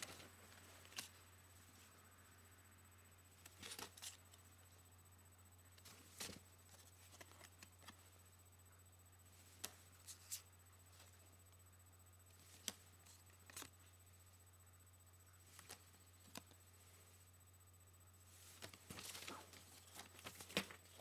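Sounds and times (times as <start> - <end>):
handling rustles and clicks: 0.0 - 1.2, 18.4 - 21.0
low electrical hum: 0.0 - 21.0.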